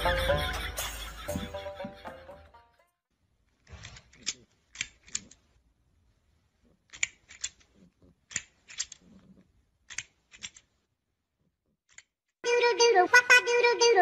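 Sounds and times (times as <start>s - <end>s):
music: 0.0s - 2.8s
plastic toy jaws clacking: 3.5s - 5.6s, 6.8s - 10.8s, 11.8s - 12.2s.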